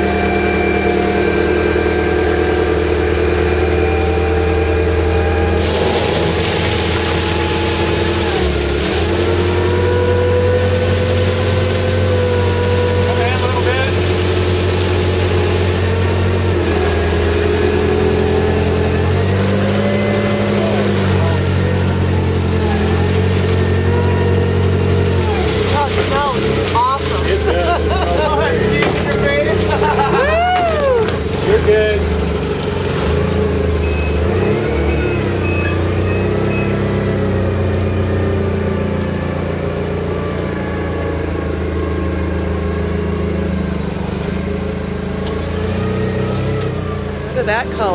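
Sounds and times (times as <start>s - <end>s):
lift machine engine running: 0.0s - 47.9s
wine must pouring into tank: 5.6s - 19.6s.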